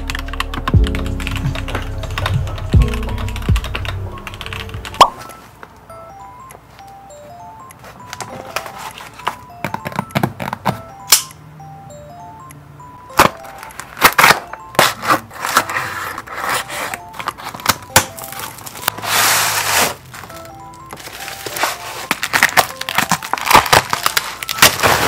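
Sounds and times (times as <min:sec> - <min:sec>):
soft background music: 0:00.0 - 0:25.0
rustle of tape and packing: 0:13.8 - 0:25.0.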